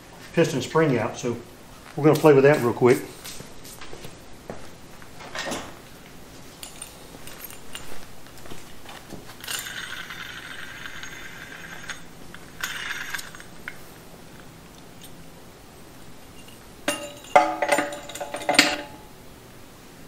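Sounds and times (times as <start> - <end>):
metal tools clinking and clanking: 6.6 - 8.0, 9.4 - 13.8, 16.3 - 19.1
short metal rattle: 16.4 - 19.1.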